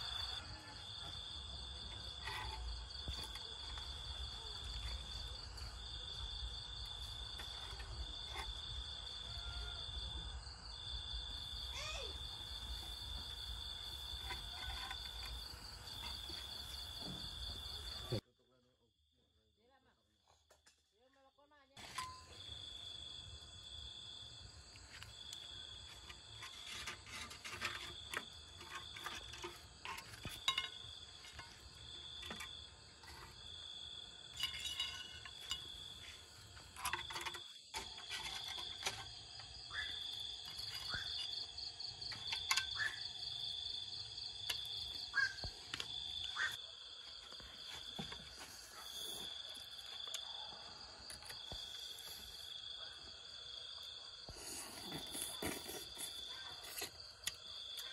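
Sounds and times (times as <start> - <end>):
insects trilling: 0.0 - 18.2, 22.0 - 57.9
clinks and knocks of handling: 26.4 - 33.5, 34.2 - 39.5.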